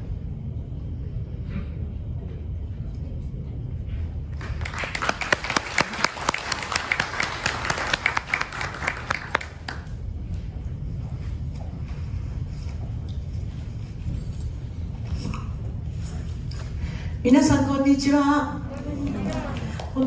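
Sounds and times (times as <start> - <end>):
low steady rumble: 0.0 - 20.0
audience applauding: 4.4 - 10.0, 18.8 - 20.0.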